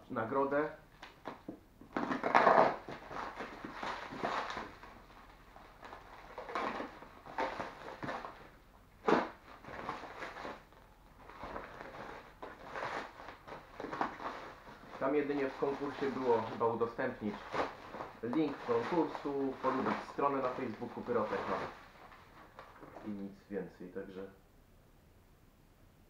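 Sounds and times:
plastic wrapping crinkling: 0.9 - 23.3.

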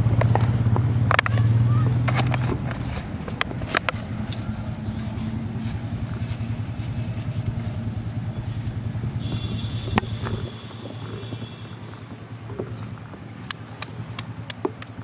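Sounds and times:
engine droning: 0.0 - 15.0
sharp clicks: 13.4 - 15.0.

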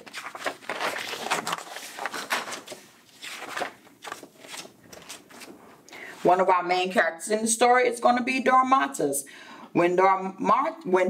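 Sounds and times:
book pages rustling: 0.0 - 5.8.

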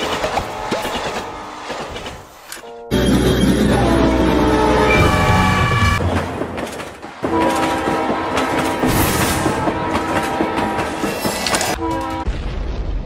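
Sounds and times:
train horn blast: 2.6 - 6.0, 7.2 - 12.3
train wheels clickety-clack: 6.0 - 12.2.

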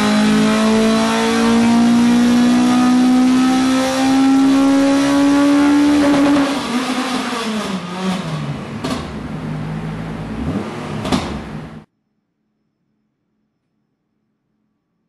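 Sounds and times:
race engine at high revs: 0.0 - 11.9.

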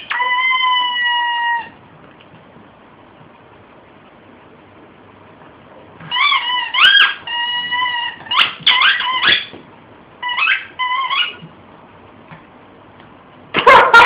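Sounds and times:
rubber squeaky toy squeaking: 0.0 - 1.8, 6.0 - 9.6, 10.2 - 11.4.

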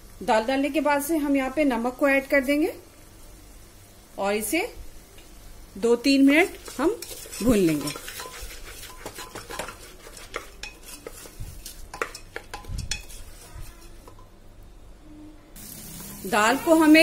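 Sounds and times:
wooden spatula scraping lentils: 6.4 - 14.3.

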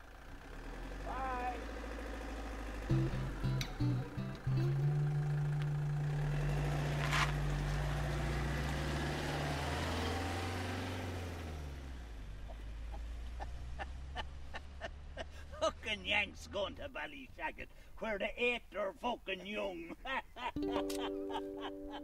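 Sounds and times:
motorhome engine pulling away: 0.0 - 16.9.

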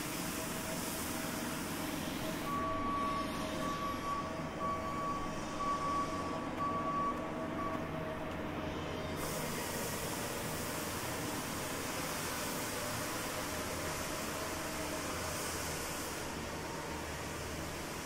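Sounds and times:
vehicle backup alarm beeping: 2.3 - 8.0.

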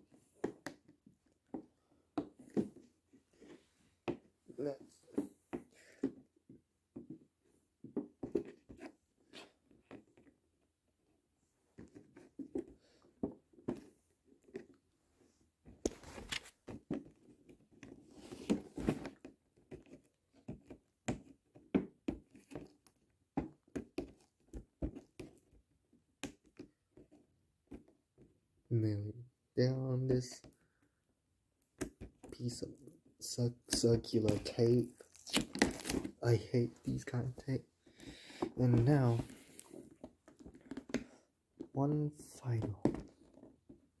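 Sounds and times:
cardboard box rustling: 34.3 - 37.0.

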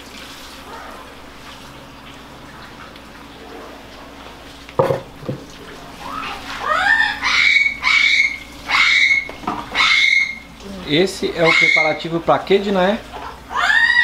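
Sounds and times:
animal calling with rising cries: 5.9 - 10.6, 11.3 - 12.1, 13.2 - 14.0.

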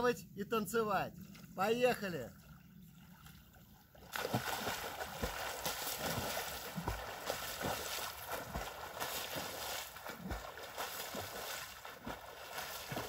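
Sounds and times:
swimming strokes splashing: 2.4 - 13.0
swimmer plunging into water: 4.0 - 13.0.

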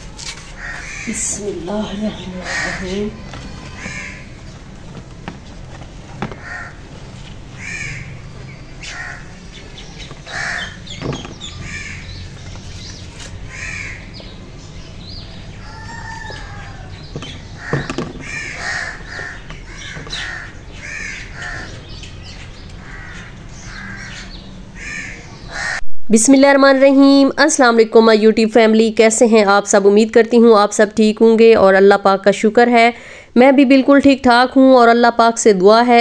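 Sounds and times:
crows cawing: 0.6 - 1.4, 2.1 - 4.5, 6.2 - 9.4, 10.2 - 12.4, 13.4 - 14.2, 15.6 - 22.0, 22.8 - 25.8.

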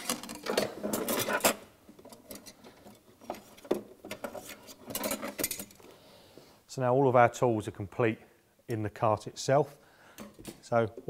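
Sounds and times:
metal tools clicking and knocking: 0.0 - 5.8.

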